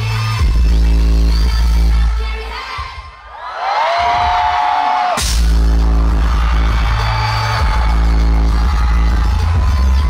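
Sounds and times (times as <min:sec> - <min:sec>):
concert crowd cheering and screaming: 0:02.5 - 0:10.0.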